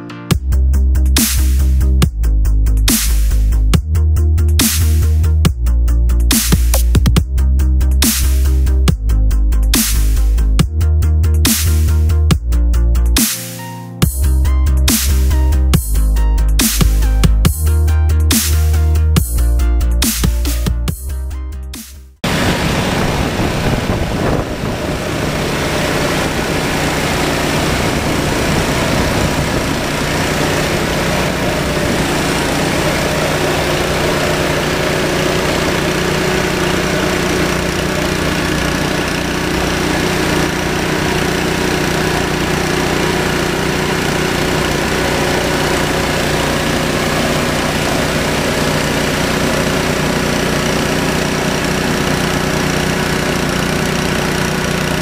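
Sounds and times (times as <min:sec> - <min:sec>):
pressure washer running: 0:04.6 - 0:05.5, 0:06.1 - 0:08.9, 0:11.4 - 0:12.2, 0:14.0 - 0:20.6, 0:22.2 - 0:55.0.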